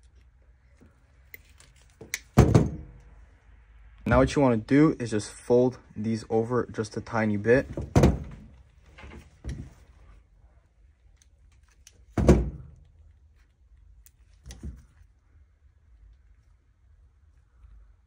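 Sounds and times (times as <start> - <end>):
knocks and thuds of handling: 2.0 - 3.0, 7.6 - 9.8, 12.1 - 12.8.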